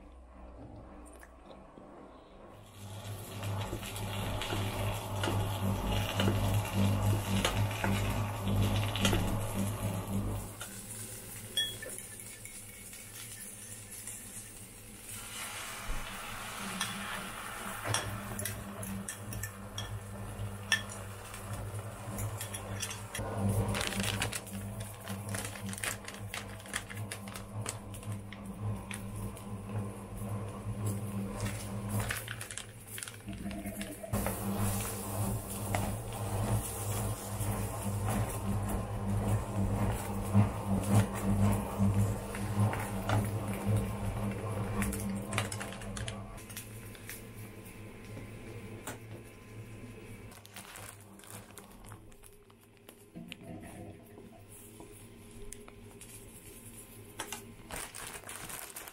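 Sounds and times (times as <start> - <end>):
food sizzling in a frying pan: 2.7 - 22.0.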